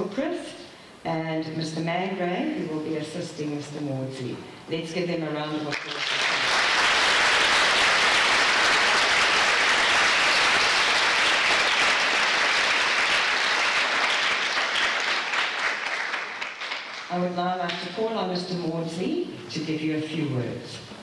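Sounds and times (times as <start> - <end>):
audience applauding: 5.7 - 17.1.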